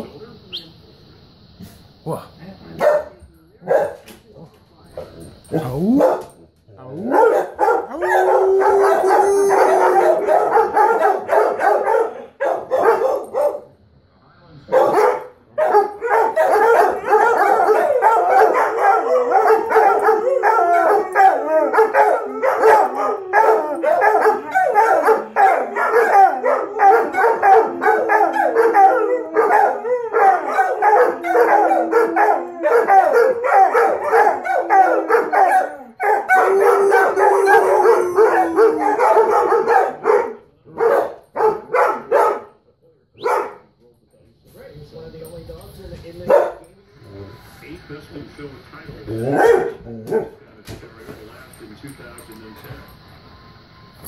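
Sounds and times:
dogs howling and yipping: 5.5 - 6.3, 7.0 - 13.5, 15.6 - 42.4, 49.1 - 50.3.

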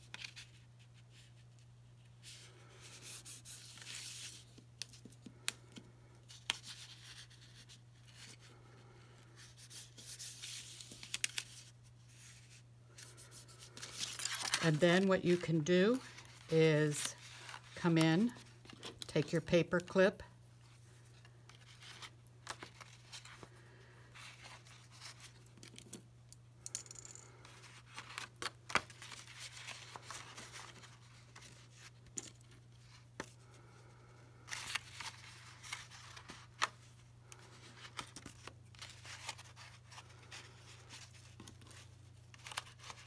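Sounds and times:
paper rustling and crinkling: 9.4 - 19.1, 21.5 - 25.8, 27.5 - 33.4, 34.4 - 43.0.

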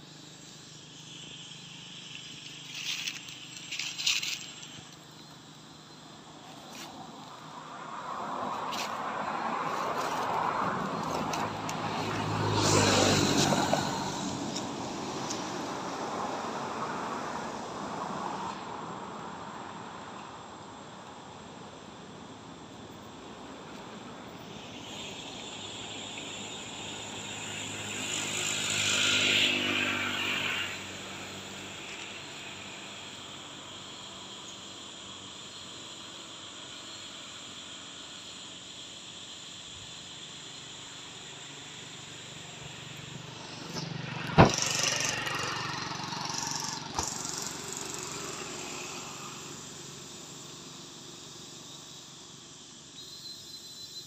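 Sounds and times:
motor vehicle passing: 5.9 - 16.0, 25.9 - 33.9, 40.3 - 50.9.

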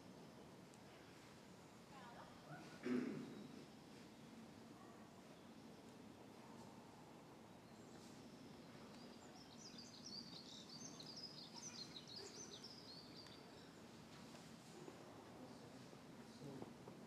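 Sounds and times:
songbird twittering: 7.6 - 13.8.

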